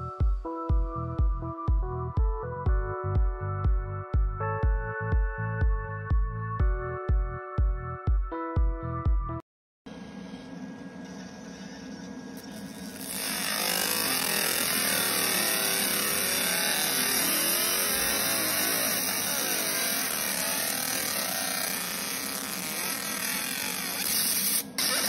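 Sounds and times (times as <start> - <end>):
laser marking machine hiss: 12.4 - 25.0.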